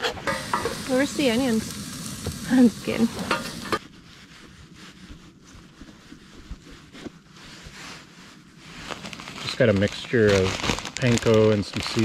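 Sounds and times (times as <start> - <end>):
paper towel rustling and dabbing: 3.8 - 12.0.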